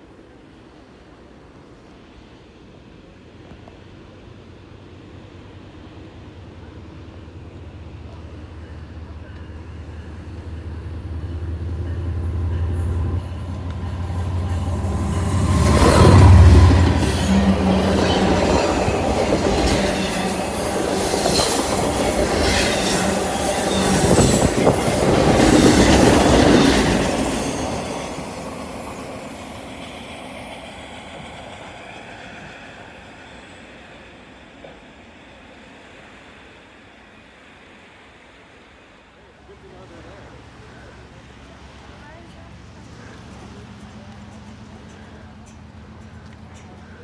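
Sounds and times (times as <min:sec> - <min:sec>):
locomotive rumble: 0:03.6 - 0:33.0, 0:39.3 - 0:47.0
wheels clacking over rail joints: 0:41.6 - 0:47.0.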